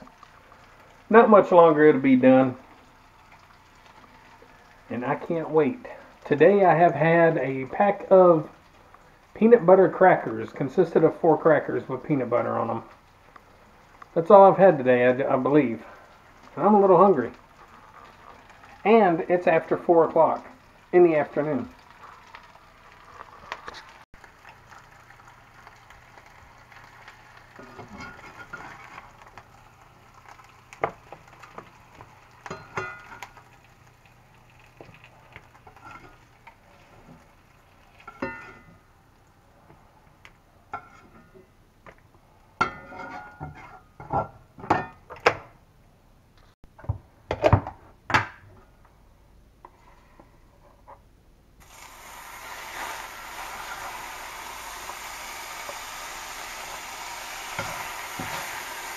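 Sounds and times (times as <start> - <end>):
metal spatula scraping skillet: 42.6 - 43.9.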